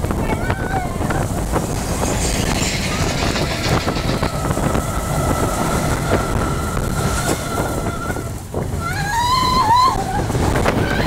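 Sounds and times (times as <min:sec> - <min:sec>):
roller coaster rumble: 0:00.0 - 0:11.0
wind rush: 0:00.0 - 0:11.0
steady high-pitched tone: 0:01.0 - 0:07.6.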